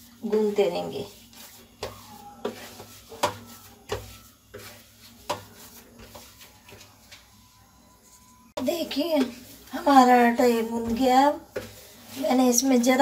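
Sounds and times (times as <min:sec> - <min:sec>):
faint rubbing of dough: 0:00.0 - 0:13.0
hand knocking dough on metal plate: 0:01.8 - 0:06.9.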